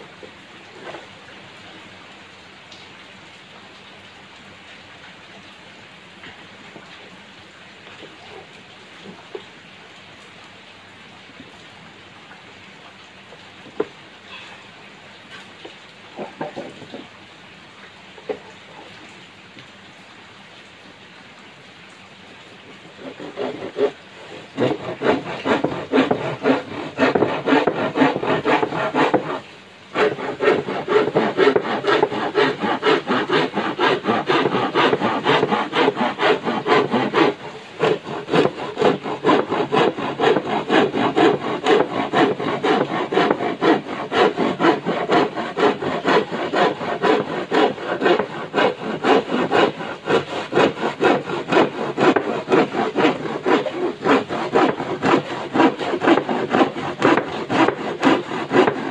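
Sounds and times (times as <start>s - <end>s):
hand saw cutting wood: 16.2s - 17.1s, 22.9s - 58.9s.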